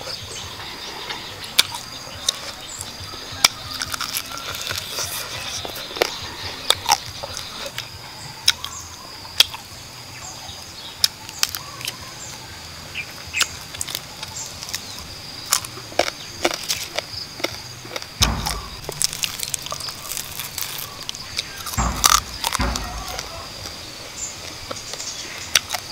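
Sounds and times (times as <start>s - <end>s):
crunching bone and skin: 0.0s - 9.7s, 13.3s - 25.9s
insects buzzing: 0.0s - 25.9s
person chewing: 3.7s - 7.8s, 15.5s - 22.6s
dull thump: 18.2s - 25.0s.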